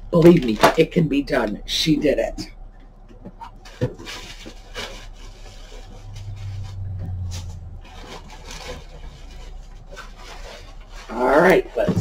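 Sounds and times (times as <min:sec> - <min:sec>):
rummaging in cardboard box: 0:00.2 - 0:01.3, 0:03.3 - 0:12.0
low rumbling rub: 0:02.5 - 0:12.0.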